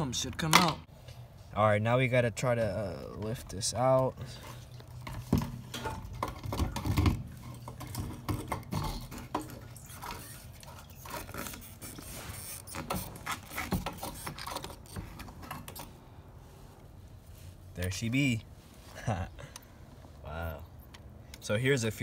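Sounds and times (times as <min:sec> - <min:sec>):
plastic scraping against metal: 0:04.4 - 0:15.9.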